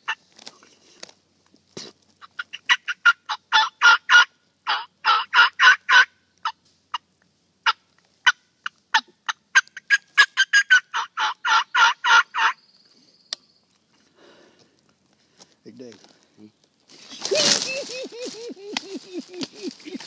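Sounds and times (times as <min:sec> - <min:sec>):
wild turkey yelping: 0:02.2 - 0:12.6, 0:17.0 - 0:20.0.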